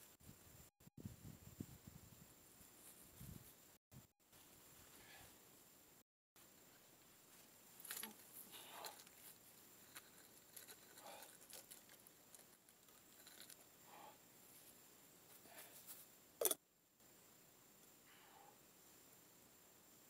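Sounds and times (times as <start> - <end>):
coins rustling and scraping: 7.8 - 13.6.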